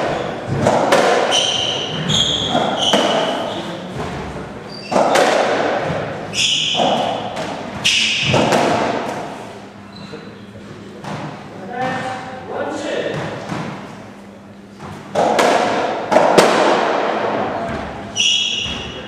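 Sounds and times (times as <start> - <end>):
racquet hitting ball: 0.0 - 9.5, 11.0 - 12.3, 13.0 - 14.0, 14.8 - 19.0
shoes squeaking on wooden floor: 1.3 - 4.0
ball thudding off walls: 14.8 - 18.0.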